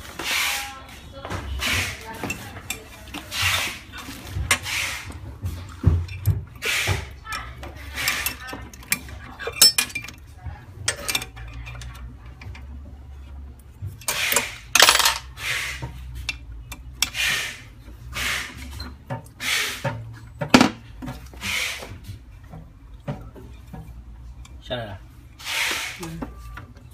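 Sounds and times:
metal parts and tools clinking: 0:07.2 - 0:12.7, 0:13.9 - 0:15.3.

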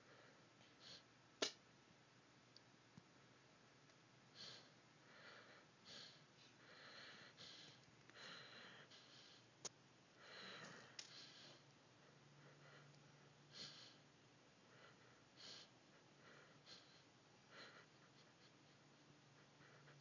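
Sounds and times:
dog breathing through nose: 0:04.4 - 0:09.4, 0:10.2 - 0:11.6, 0:14.7 - 0:18.5.

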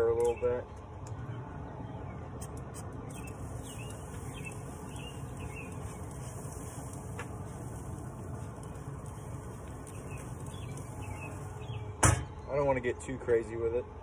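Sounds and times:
grill fan humming: 0:00.0 - 0:14.0
faint bird chirps: 0:03.0 - 0:06.9, 0:08.6 - 0:12.6.

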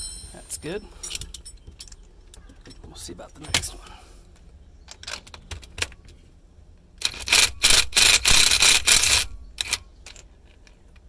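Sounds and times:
ratchet wrench clicking: 0:07.0 - 0:09.8.

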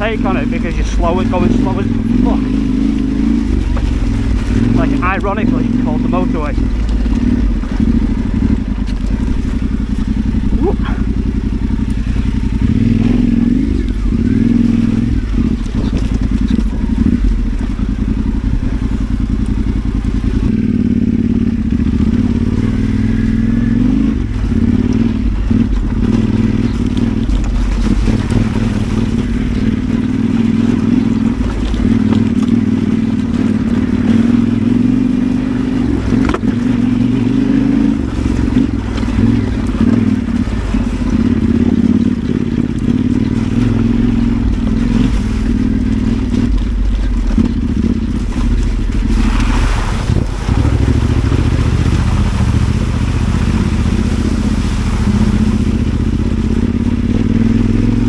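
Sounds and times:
motorcycle engine running: 0:00.0 - 0:58.0
motorcycle knocks and rattles: 0:00.0 - 0:58.0.

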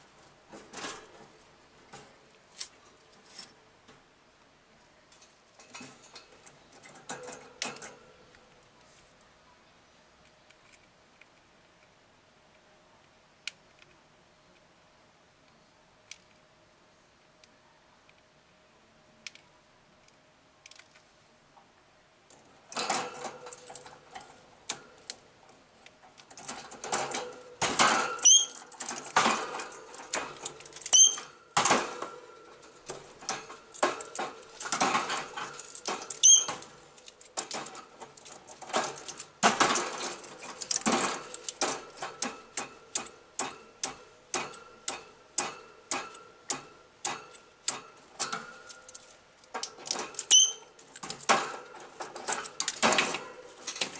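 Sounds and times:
pinecone rattling on metal grate: 0:22.3 - 0:53.9
parrot squeaks: 0:28.2 - 0:28.6, 0:30.9 - 0:31.2, 0:36.2 - 0:36.5, 0:50.3 - 0:50.6.

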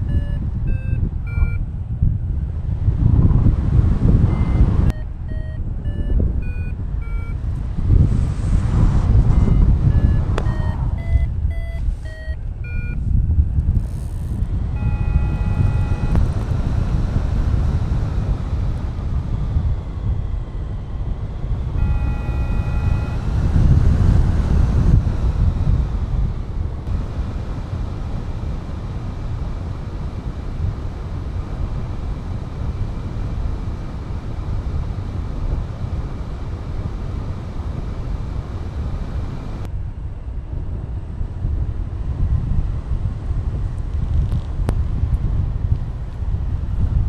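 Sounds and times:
variometer beeping: 0:00.0 - 0:01.6, 0:04.0 - 0:08.1, 0:09.2 - 0:18.2, 0:21.7 - 0:24.4
wind rushing over microphone: 0:00.0 - 0:47.0.

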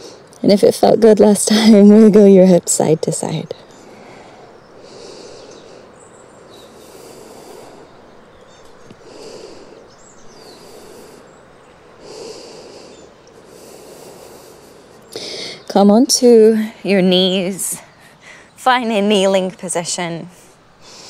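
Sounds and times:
woman breathing slowly: 0:03.5 - 0:15.7, 0:17.8 - 0:18.6, 0:20.3 - 0:21.0.

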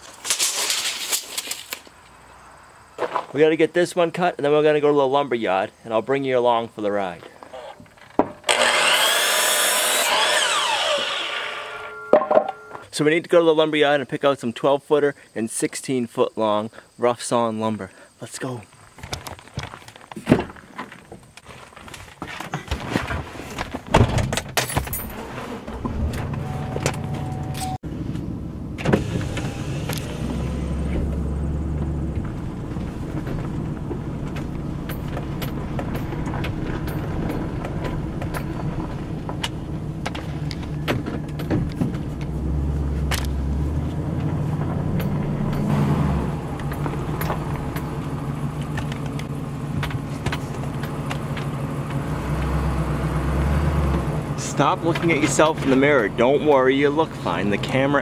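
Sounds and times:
tyres on gravel: 0:00.0 - 0:03.6, 0:18.4 - 0:24.0, 0:29.0 - 0:58.0
truck engine humming: 0:25.7 - 0:58.0.

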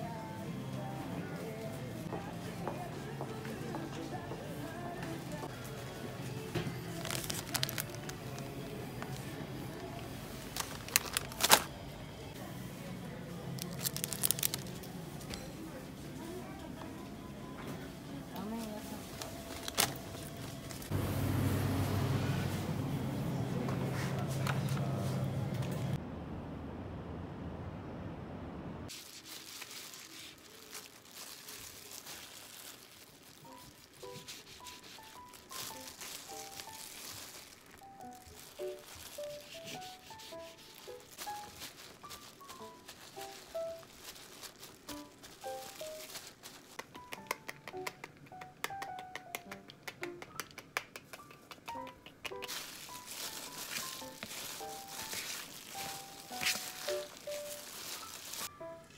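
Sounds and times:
plucked background music: 0:00.0 - 0:14.9, 0:33.4 - 0:50.4, 0:51.2 - 0:58.9
plastic glove crinkling: 0:06.4 - 0:11.8, 0:13.5 - 0:15.1, 0:18.3 - 0:20.9, 0:28.9 - 0:47.2, 0:52.3 - 0:58.6
soft music notes: 0:51.7 - 0:58.9.

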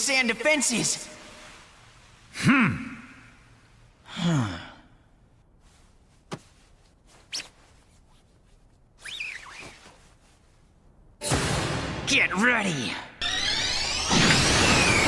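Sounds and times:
low sigh: 0:04.0 - 0:05.1.

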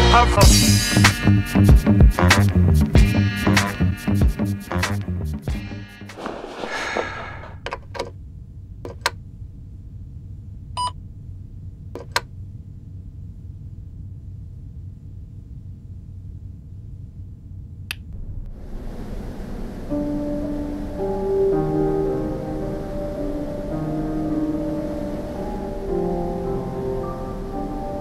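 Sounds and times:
low room hum: 0:06.2 - 0:28.0.

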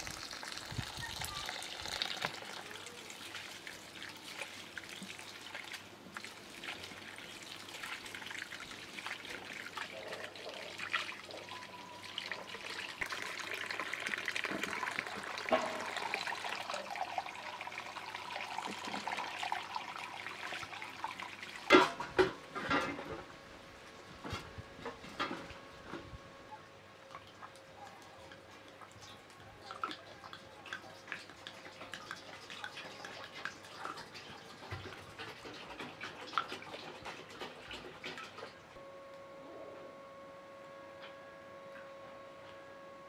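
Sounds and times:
water splashing into a plastic bowl: 0:00.0 - 0:11.3, 0:13.0 - 0:22.3
rinse water pouring off: 0:00.0 - 0:21.8.

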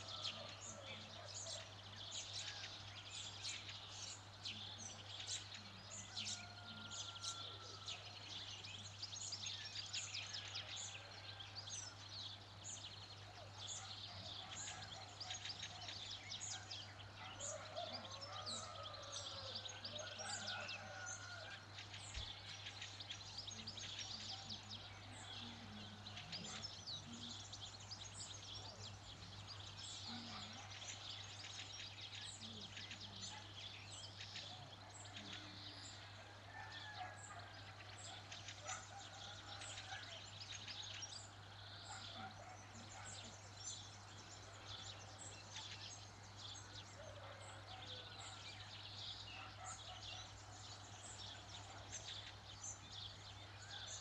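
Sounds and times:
songbirds chirping: 0:00.0 - 0:54.0.

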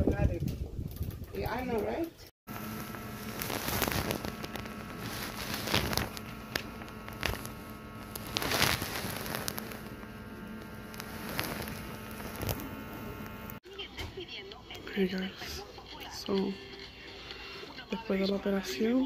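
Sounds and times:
sharp crackles: 0:00.3 - 0:13.6
steady low hum: 0:02.5 - 0:13.6
phone rustling against bed sheets: 0:02.6 - 0:13.6.

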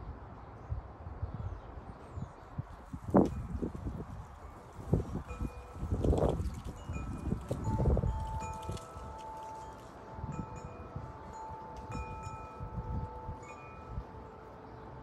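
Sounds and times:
wind chime ringing: 0:04.5 - 0:15.0.

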